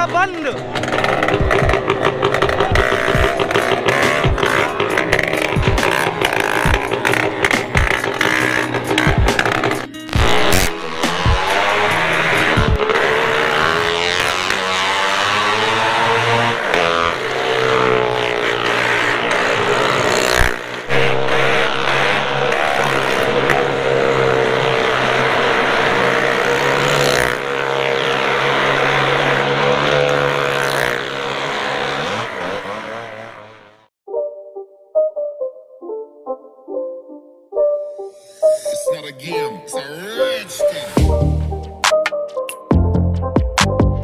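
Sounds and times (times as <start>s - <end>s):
fairground ride mechanical drone: 0.0s - 33.8s.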